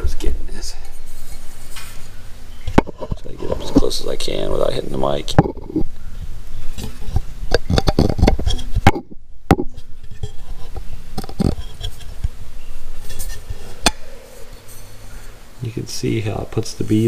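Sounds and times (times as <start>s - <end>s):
metal pipe handling knocks and rubs: 6.8s - 12.2s.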